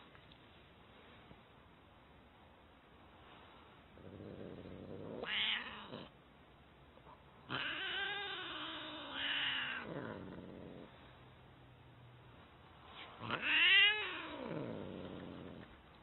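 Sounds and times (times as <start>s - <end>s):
cat yowling: 5.2s - 6.1s, 7.5s - 9.9s, 13.3s - 14.7s.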